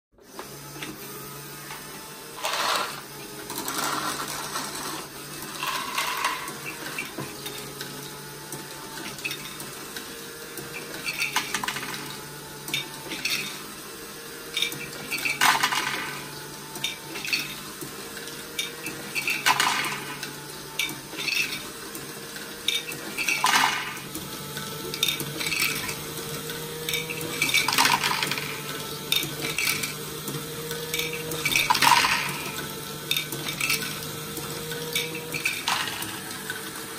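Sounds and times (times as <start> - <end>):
electric motor and gears humming: 0.2 - 36.9
plastic balls rattling: 2.4 - 7.1, 15.2 - 16.3, 19.2 - 20.2, 23.2 - 24.0, 26.9 - 30.0, 31.0 - 34.0, 34.8 - 36.3.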